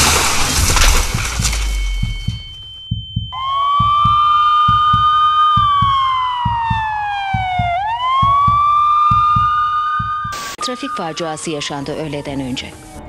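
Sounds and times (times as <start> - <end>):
low paired thumps: 0.0 - 10.4
emergency siren wailing: 3.3 - 13.0.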